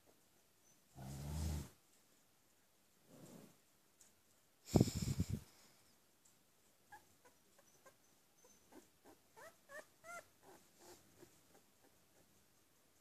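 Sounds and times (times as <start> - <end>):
puppy whimpering: 6.9 - 12.3.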